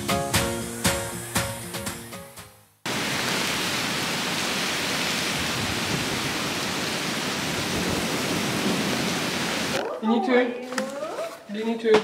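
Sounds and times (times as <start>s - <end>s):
background music: 0.0s - 2.8s
steady rain: 2.8s - 10.0s.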